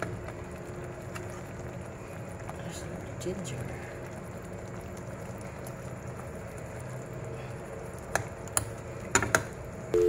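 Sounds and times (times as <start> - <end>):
fish simmering in frying pan: 0.0 - 9.9.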